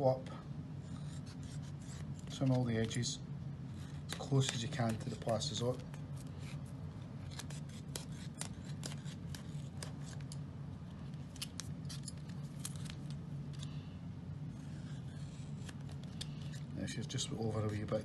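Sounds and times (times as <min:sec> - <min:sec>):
small scissors snipping tape: 0:07.3 - 0:10.4.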